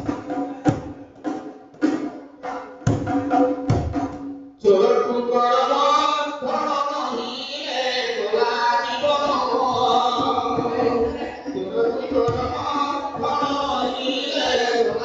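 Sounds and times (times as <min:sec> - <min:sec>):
man singing into a microphone: 0:04.6 - 0:15.0.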